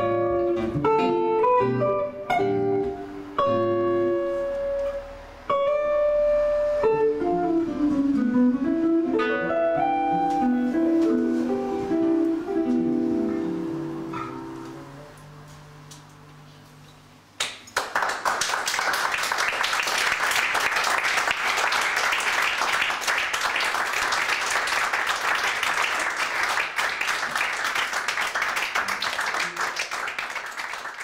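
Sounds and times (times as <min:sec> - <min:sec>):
audience clapping: 0:17.4 - 0:31.0.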